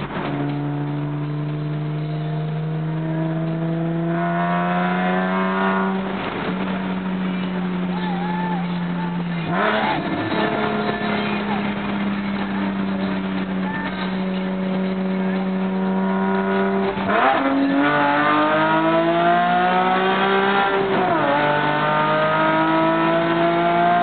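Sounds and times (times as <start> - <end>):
raspy car engine accelerating: 0.0 - 24.0.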